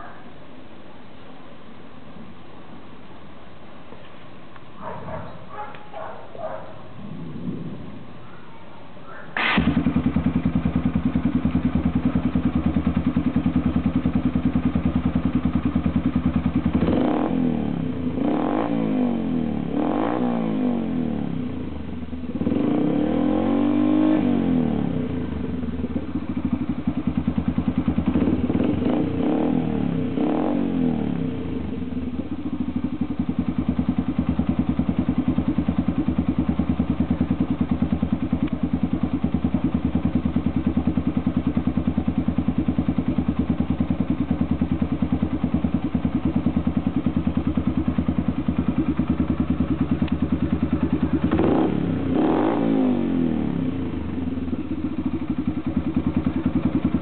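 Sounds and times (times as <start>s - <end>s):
motorcycle engine idling: 9.1s - 18.4s, 20.8s - 57.0s
engine revving: 9.4s - 11.3s, 16.5s - 21.5s, 22.3s - 26.0s, 27.2s - 31.9s, 46.1s - 57.0s.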